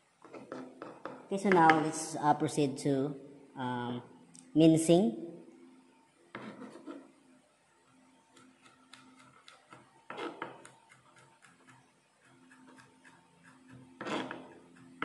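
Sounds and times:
knife cutting on plastic board: 0:08.4 - 0:15.0.

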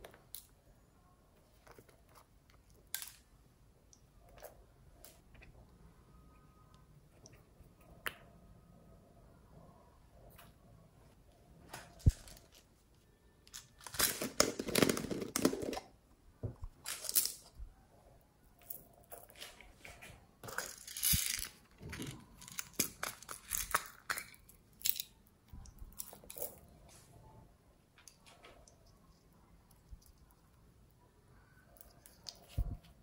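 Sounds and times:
small clicks taps and crinkles: 0:28.0 - 0:30.6, 0:31.7 - 0:33.0.

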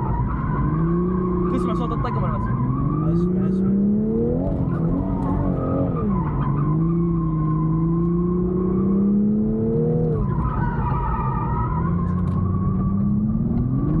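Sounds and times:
car engine revving high: 0:00.0 - 0:14.0.

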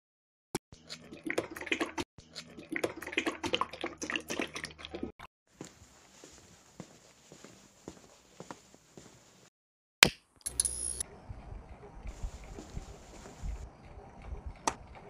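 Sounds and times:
low hum: 0:10.5 - 0:15.0.

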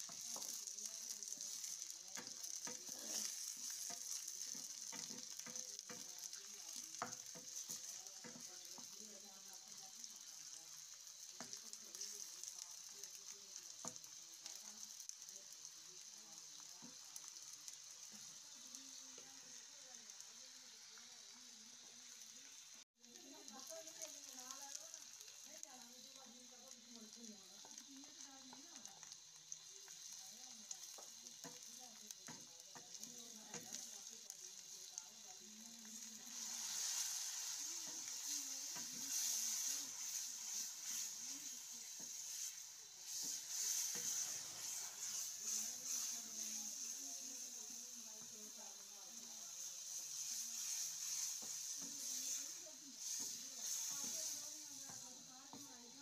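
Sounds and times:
spatula scraping a pan: 0:00.0 - 0:12.6, 0:35.8 - 0:56.0
onions sizzling in oil: 0:00.0 - 0:56.0.

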